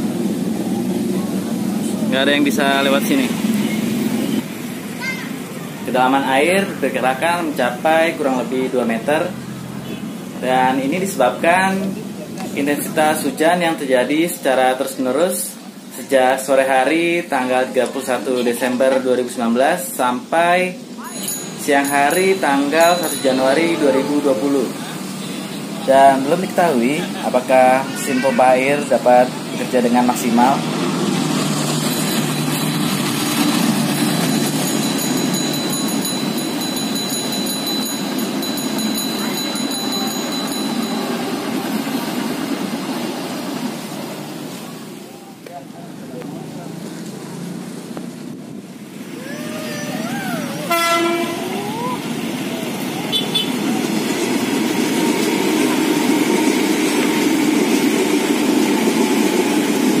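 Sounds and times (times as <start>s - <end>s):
train rumbling: 0.0s - 45.1s, 46.7s - 60.0s
train wheels rumbling on rails: 28.8s - 45.0s, 50.6s - 60.0s.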